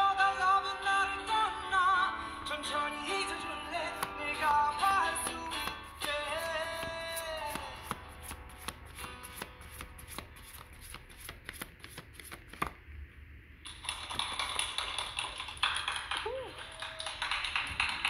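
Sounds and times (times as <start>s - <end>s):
cards being shuffled: 4.0s - 12.8s
rustling of cards: 4.0s - 12.8s.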